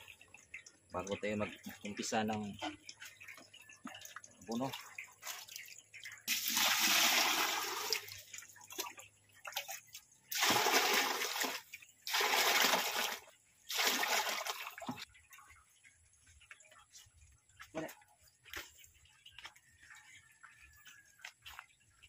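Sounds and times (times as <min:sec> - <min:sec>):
water pouring into metal bucket: 0:00.0 - 0:15.1.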